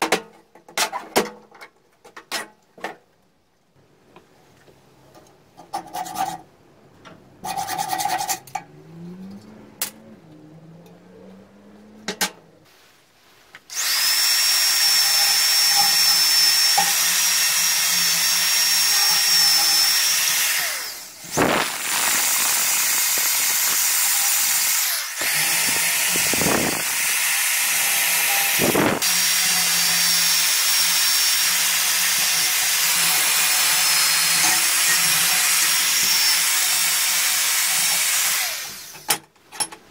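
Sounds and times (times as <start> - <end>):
hacksaw strokes on steel: 7.4 - 8.6
electric drill whining: 13.7 - 39.1.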